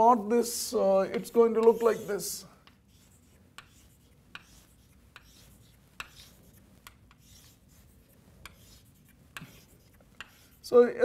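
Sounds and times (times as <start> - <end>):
chalk tapping and scraping blackboard: 1.1 - 10.7.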